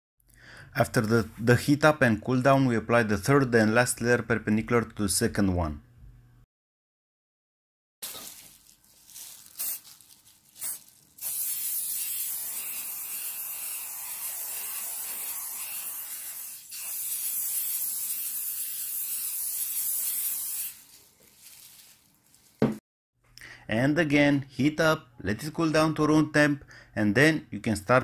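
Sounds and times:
aerosol spray hissing: 0:09.6 - 0:09.8, 0:10.6 - 0:12.6
soft knocks and handling noises: 0:21.2 - 0:22.8.

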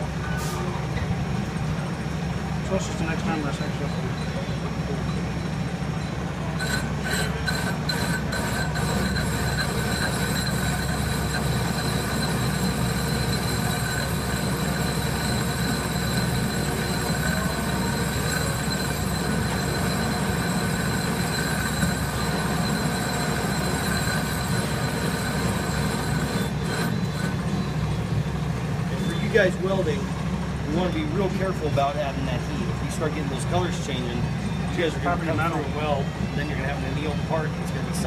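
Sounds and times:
metal lathe drone: 0:05.5 - 0:31.8
high whine of cutting tool: 0:06.6 - 0:27.9.

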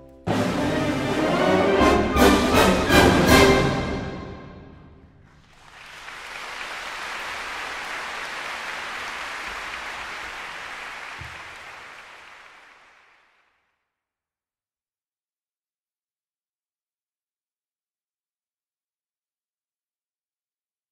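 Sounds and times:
audience applauding: 0:05.2 - 0:13.7.

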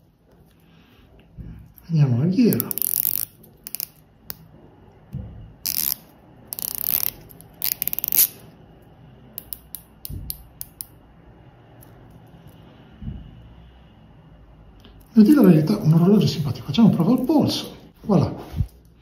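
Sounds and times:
watch bezel ratchet clicking: 0:02.5 - 0:04.0, 0:05.7 - 0:08.4, 0:09.4 - 0:10.9.

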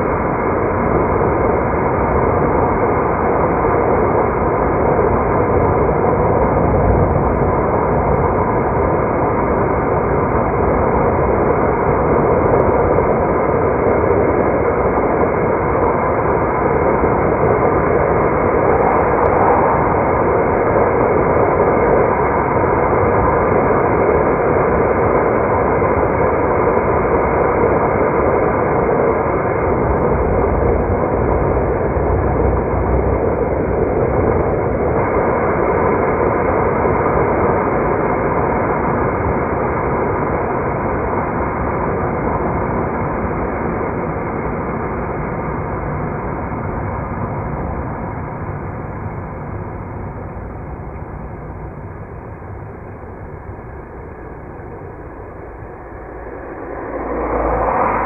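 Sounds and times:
car road and engine noise: 0:15.9 - 0:23.2, 0:28.1 - 0:36.3, 0:39.3 - 0:58.0.

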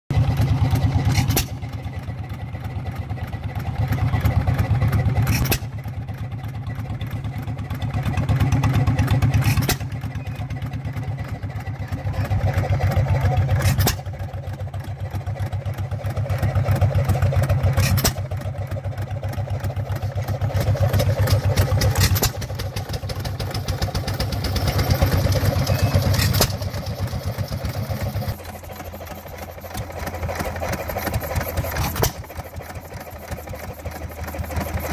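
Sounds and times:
hit-and-miss engine running: 0:00.1 - 0:34.9
quieter engine running: 0:00.1 - 0:34.9.

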